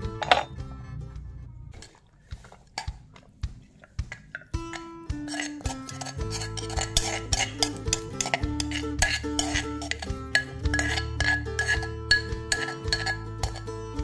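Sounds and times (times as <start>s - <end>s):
background music: 0.0s - 14.0s
utensils clinking on ceramic plate: 4.1s - 13.7s.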